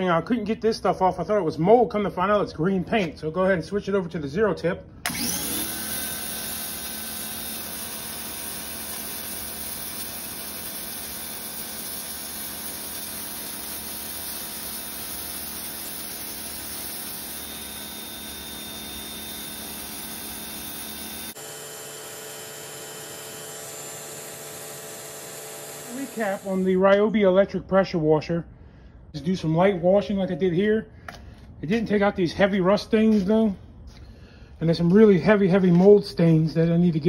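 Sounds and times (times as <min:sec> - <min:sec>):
pressure washer motor humming: 0:05.0 - 0:26.8.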